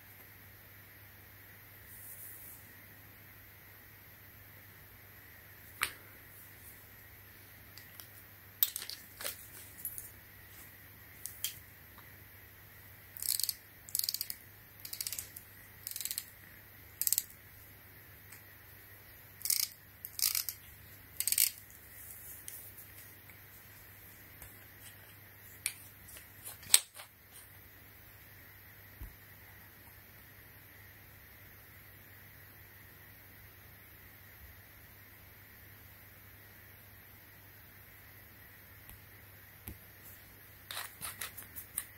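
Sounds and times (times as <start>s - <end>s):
ratchet rapid clicking: 13.2s - 16.3s, 17.0s - 17.3s
sharp ratchet click: 13.2s - 16.3s, 17.0s - 17.3s.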